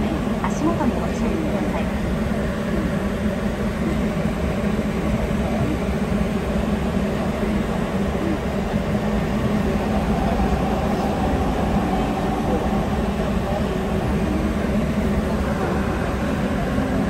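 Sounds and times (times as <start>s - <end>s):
subway train running: 0.0s - 17.0s.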